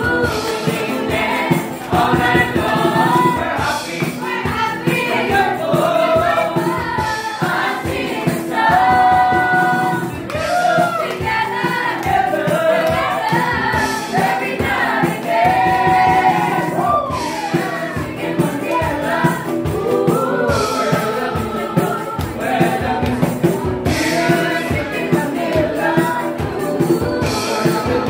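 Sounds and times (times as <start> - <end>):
group singing in harmony: 0.0 - 28.0
rhythmic beat: 0.0 - 28.0.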